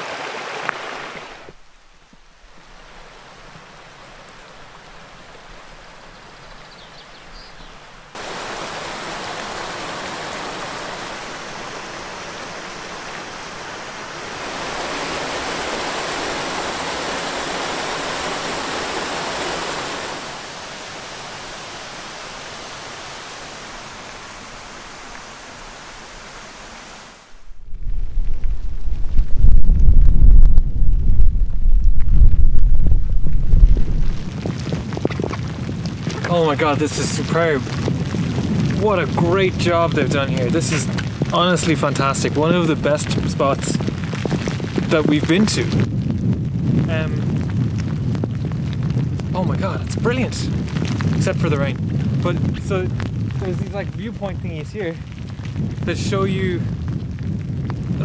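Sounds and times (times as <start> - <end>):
rushing stream water: 0.0 - 28.0, 33.4 - 43.6
wind on microphone: 6.6 - 23.6, 27.3 - 58.0.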